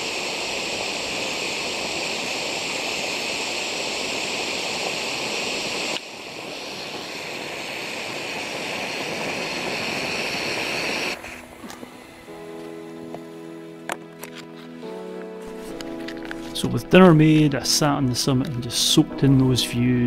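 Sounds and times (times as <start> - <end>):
gas stove burner hissing: 0.0 - 14.0.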